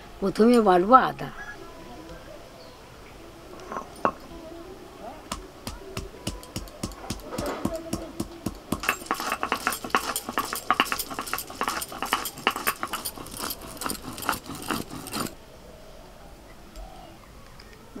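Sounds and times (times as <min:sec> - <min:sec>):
stone-on-stone pounding knocks: 0:05.3 - 0:15.4.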